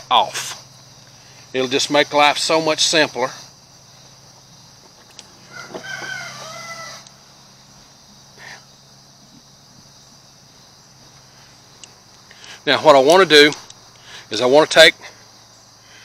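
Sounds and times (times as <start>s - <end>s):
rooster crowing: 5.4s - 7.5s.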